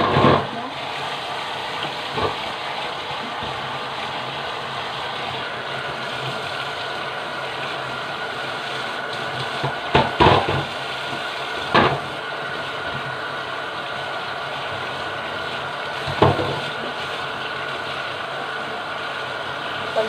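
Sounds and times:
tap water running into sink: 0.0 - 20.0.

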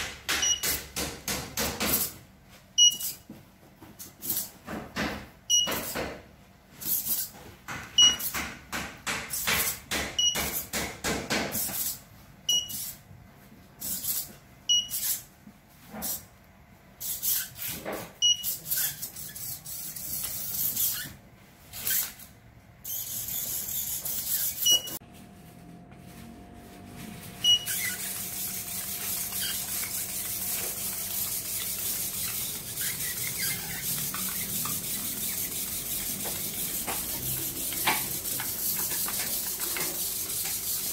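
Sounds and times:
high beeps: 27.4 - 27.8.

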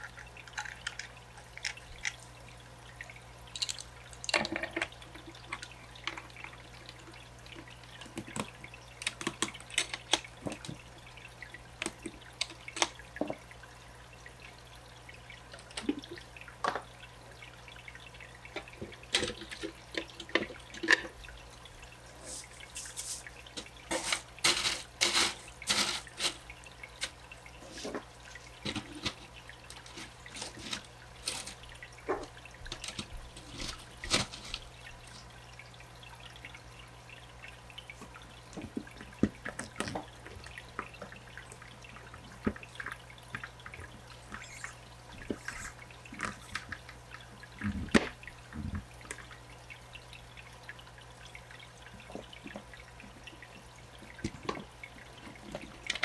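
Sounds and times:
plastic parts clicking and tapping: 3.6 - 6.6, 8.1 - 10.8.

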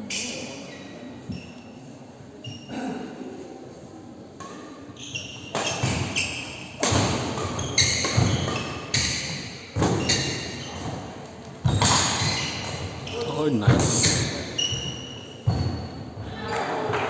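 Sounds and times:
shoes squeaking on court: 0.0 - 2.8, 4.5 - 16.8
rackets hitting shuttlecock: 5.4 - 13.1.

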